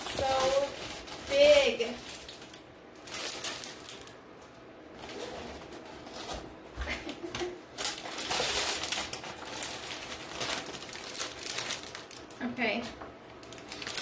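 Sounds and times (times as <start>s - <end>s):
plastic bags crinkling: 0.0s - 4.3s, 4.9s - 14.0s.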